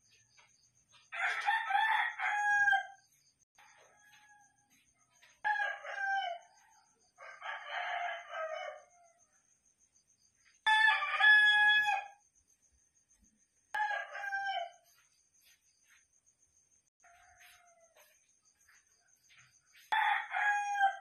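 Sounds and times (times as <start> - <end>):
rooster crowing: 1.1 - 9.2, 10.6 - 12.2, 13.7 - 15.0, 17.0 - 21.0.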